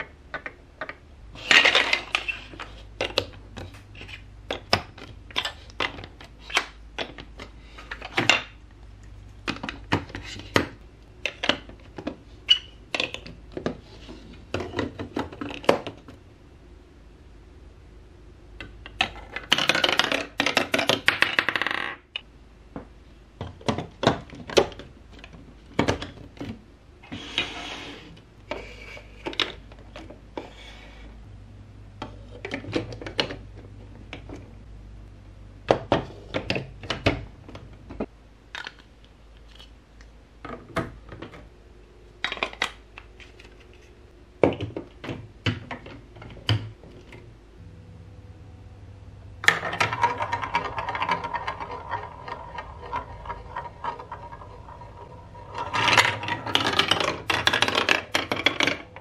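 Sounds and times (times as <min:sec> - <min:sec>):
plastic blocks clacking: 0:00.0 - 0:08.6, 0:09.4 - 0:16.2, 0:18.6 - 0:22.2, 0:35.7 - 0:39.7, 0:42.2 - 0:47.2, 0:49.4 - 0:59.0
ball rattling down plastic track: 0:19.0 - 0:22.2, 0:49.4 - 0:59.0.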